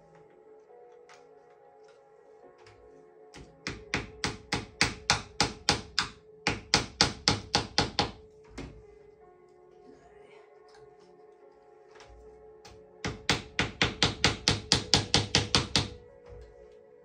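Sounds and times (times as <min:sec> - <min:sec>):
mallet tapping wooden wedge: 0:03.6 - 0:08.2.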